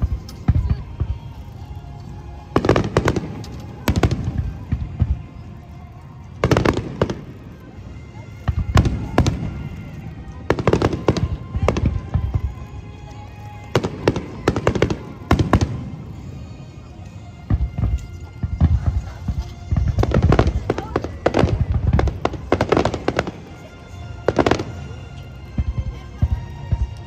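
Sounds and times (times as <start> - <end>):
fireworks bursting: 0.0 - 1.4, 2.1 - 27.0.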